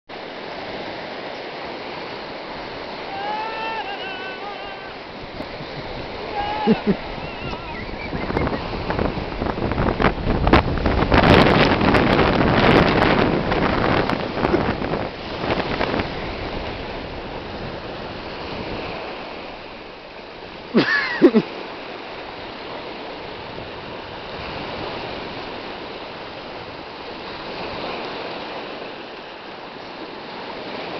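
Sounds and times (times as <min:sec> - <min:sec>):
waves washing over pebbles: 0:00.2 - 0:30.9
person shouting: 0:03.0 - 0:05.1, 0:06.2 - 0:07.8
high drawn-out voice: 0:03.1 - 0:05.0, 0:06.3 - 0:07.7.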